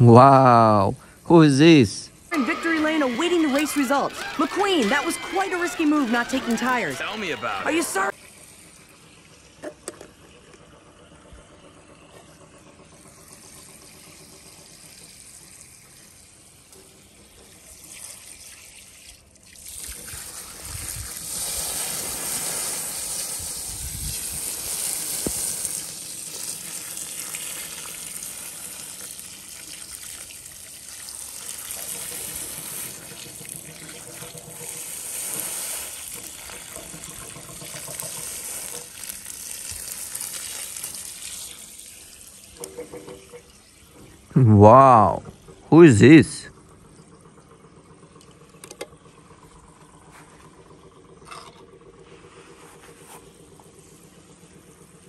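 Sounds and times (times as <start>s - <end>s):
water splashing and trickling: 2.8s - 45.8s.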